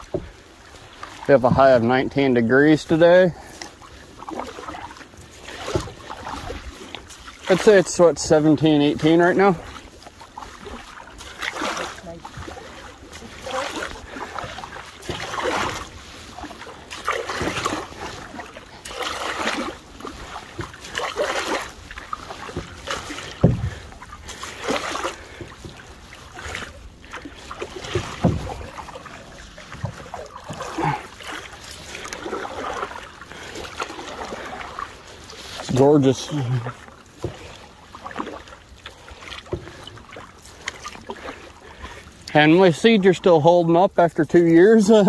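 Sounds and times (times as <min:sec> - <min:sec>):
paddles swishing through water: 0:00.0 - 0:45.0
dull knocks: 0:22.5 - 0:23.9, 0:27.9 - 0:28.8.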